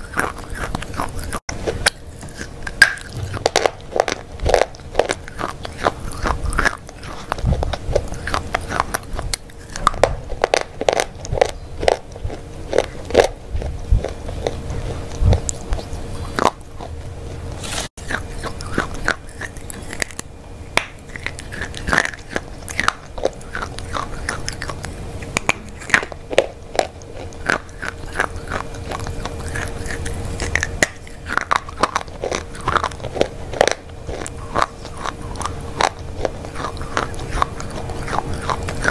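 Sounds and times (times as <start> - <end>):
chewing: 0.0 - 38.9
chocolate snapping: 18.1 - 38.9.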